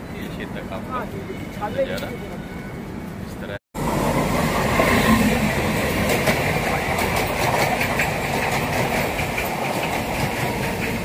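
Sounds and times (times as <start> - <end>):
train rumbling on track: 0.0 - 11.0
wheels clicking over rail joints: 5.8 - 11.0.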